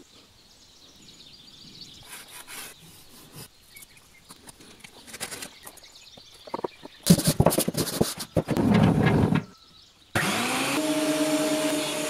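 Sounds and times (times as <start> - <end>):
bird chirping: 0.0 - 10.2
scraping of pallet wood: 6.4 - 9.6.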